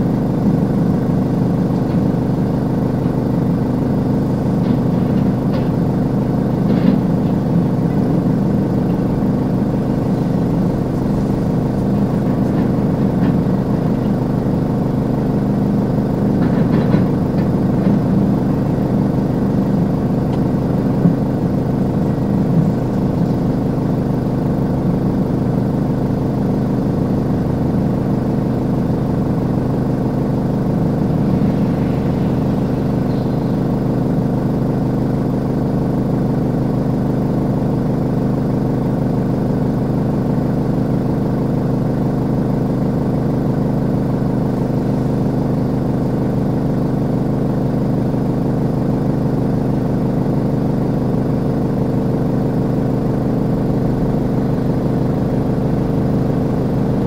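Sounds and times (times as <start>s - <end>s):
engine humming steadily: 0.0s - 57.0s.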